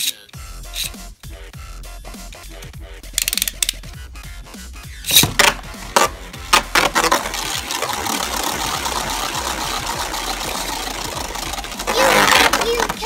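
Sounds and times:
spinning top whirring: 0.7s - 1.0s, 2.3s - 3.9s, 5.0s - 13.0s
spinning top clacking on plastic: 3.1s - 3.9s, 5.1s - 13.0s.

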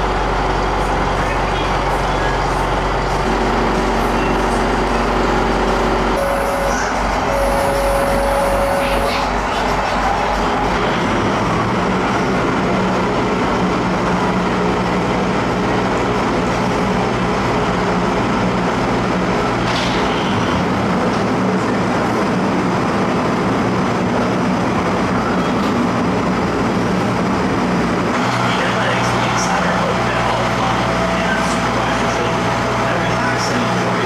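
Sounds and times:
boat engine droning: 3.0s - 12.3s.

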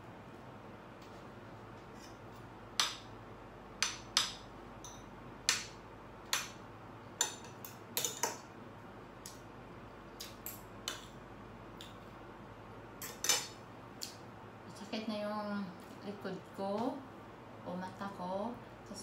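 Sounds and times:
cutlery clinking against a plate: 7.2s - 8.4s, 13.0s - 13.6s.

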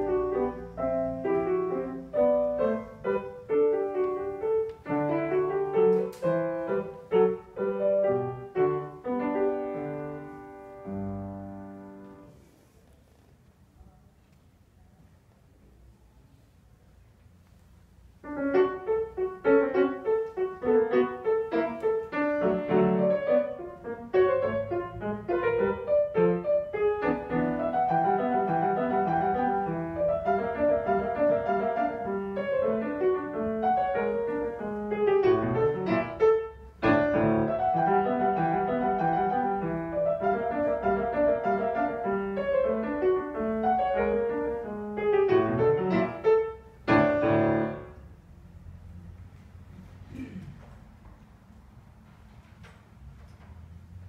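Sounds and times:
grand piano playing: 0.0s - 12.4s, 18.2s - 48.2s.

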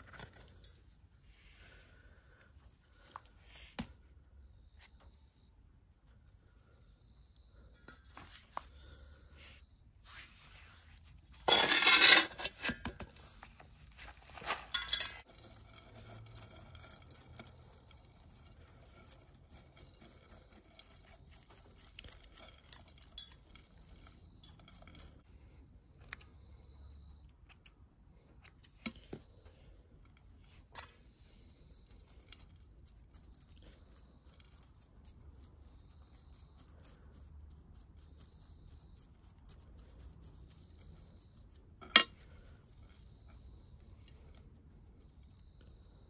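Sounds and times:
tweezers scratching soil: 10.1s - 25.3s, 30.8s - 45.6s
gravel dropping onto metal tray: 11.4s - 13.1s, 14.0s - 18.0s
plastic pot crinkling: 13.6s - 16.3s.

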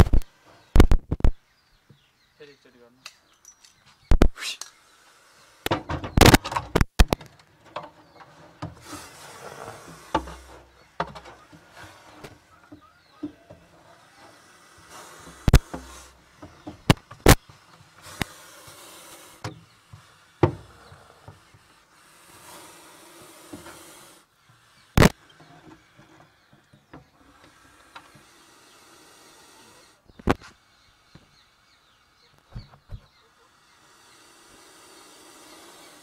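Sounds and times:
snake hissing: 4.3s - 5.9s, 8.8s - 26.5s, 27.1s - 36.0s.

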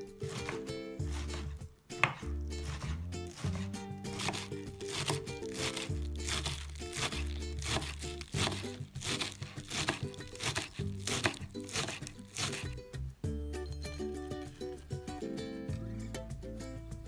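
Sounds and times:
background music: 0.0s - 17.0s
knife chopping on wooden board: 0.3s - 12.8s.

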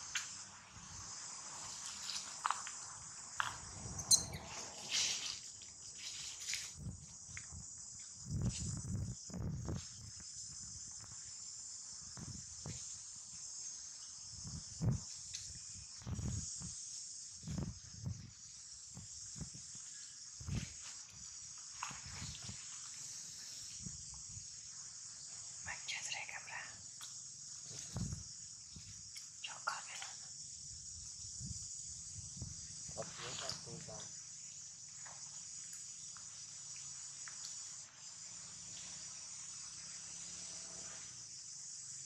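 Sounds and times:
high-pitched insect chorus: 0.0s - 42.0s
soft low thumps and rustles: 6.0s - 11.2s, 12.0s - 13.1s, 14.4s - 16.8s, 27.7s - 29.1s.

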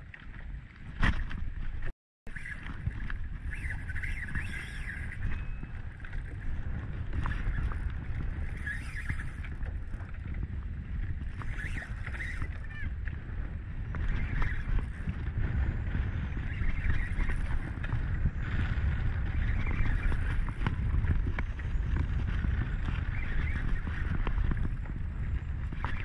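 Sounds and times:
choppy water: 0.0s - 26.0s
wind rumble: 0.0s - 26.0s
short high squeaks: 2.3s - 2.8s, 3.4s - 5.8s, 8.4s - 9.5s, 11.4s - 13.0s.

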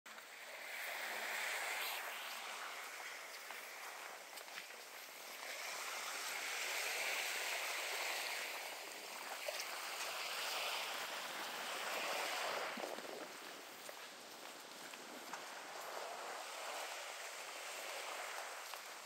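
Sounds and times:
wind: 0.1s - 19.0s
lagoon water: 0.2s - 19.0s
footsteps on wooden boardwalk: 2.8s - 5.5s, 12.8s - 16.8s, 18.2s - 19.0s.

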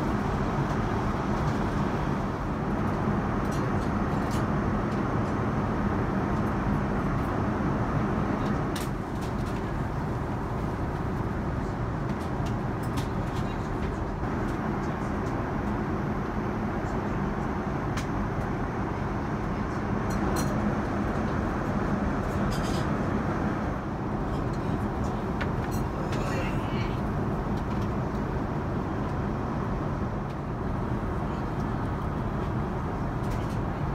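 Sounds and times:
airplane cabin drone: 0.0s - 33.9s.

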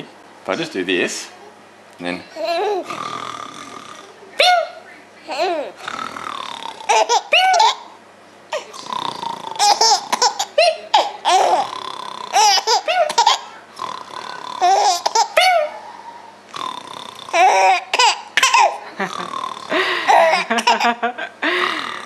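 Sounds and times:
baby giggling: 2.4s - 3.0s, 4.4s - 5.8s, 6.8s - 7.9s, 9.5s - 11.7s, 12.3s - 13.5s, 14.6s - 16.0s, 17.3s - 21.2s.

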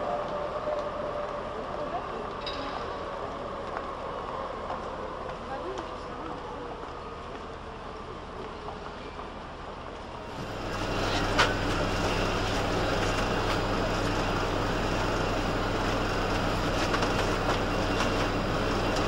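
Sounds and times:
street noise: 0.0s - 19.0s
tram rumbling on tracks: 0.0s - 19.0s
steady low hum: 10.2s - 19.0s.

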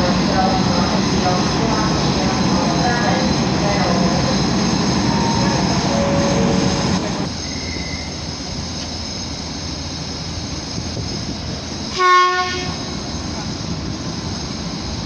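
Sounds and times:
train wheels rolling and squealing: 0.0s - 15.0s
train horn blast: 11.9s - 12.9s.

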